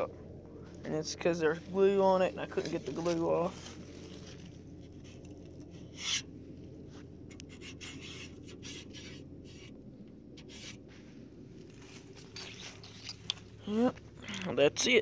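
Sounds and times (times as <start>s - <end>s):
steady low hum: 0.0s - 15.0s
rubbing and scraping: 1.6s - 13.6s.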